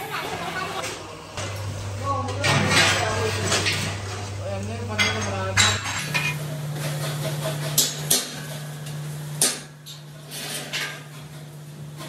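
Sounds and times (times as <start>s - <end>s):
steady low hum: 0.6s - 12.0s
hand tools clanking on steel: 5.0s - 6.4s.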